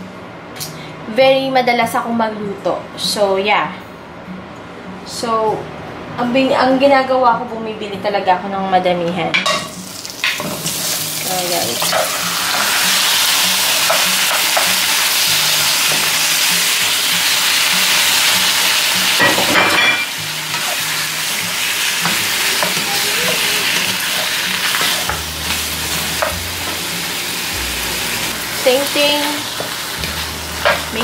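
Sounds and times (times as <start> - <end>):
meat sizzling in hot oil: 9.8 - 19.3, 20.0 - 31.0
utensil scraping and knocking wok: 22.0 - 26.8, 28.3 - 31.0.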